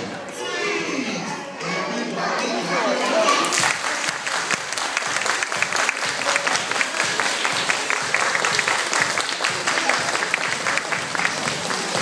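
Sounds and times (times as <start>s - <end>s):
hands clapping: 3.4s - 12.0s.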